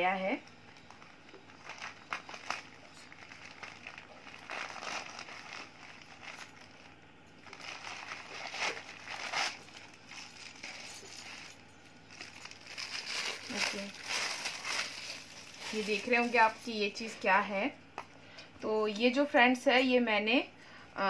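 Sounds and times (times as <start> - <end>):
packaging rustling and crinkling: 0.6 - 16.9.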